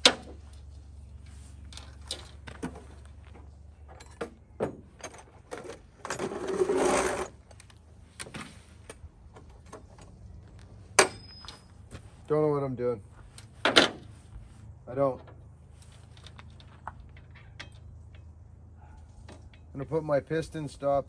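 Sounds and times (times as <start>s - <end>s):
tools clinking on metal tailgate: 3.8s - 6.4s, 10.9s - 11.7s, 16.1s - 19.8s
rustling scrape: 6.1s - 7.4s.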